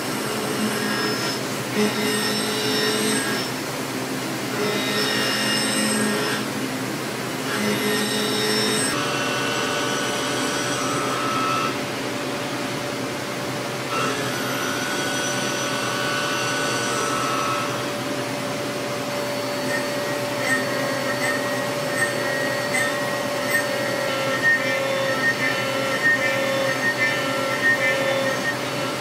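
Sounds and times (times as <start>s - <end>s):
cnc mill machining whine: 0.0s - 29.0s.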